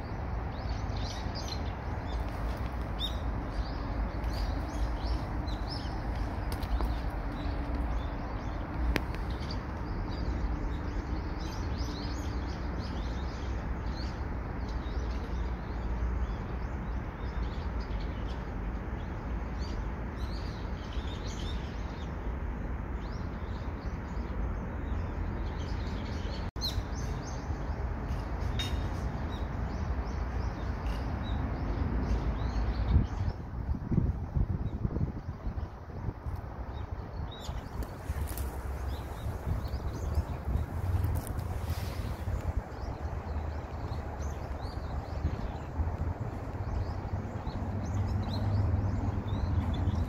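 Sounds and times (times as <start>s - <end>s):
small birds chirping: 0.0s - 22.3s, 34.6s - 50.0s.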